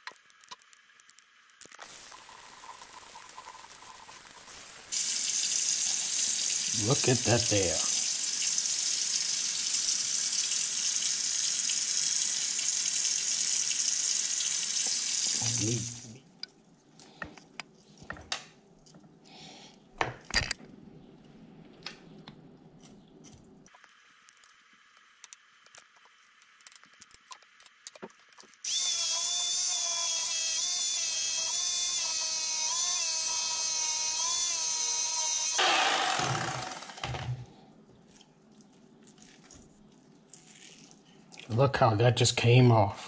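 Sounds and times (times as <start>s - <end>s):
small clicks and knocks: 0.0s - 1.8s, 24.3s - 28.6s
electric fillet knife whining: 28.6s - 37.5s.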